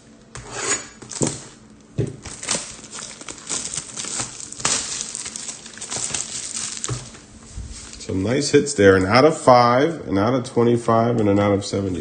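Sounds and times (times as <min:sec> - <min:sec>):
plastic shrink-wrap tearing: 0:02.2 - 0:08.3.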